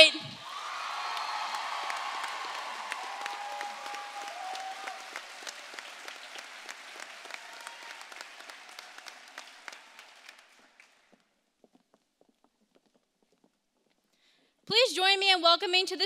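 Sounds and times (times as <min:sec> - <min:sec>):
audience applauding: 0:00.4 - 0:11.2.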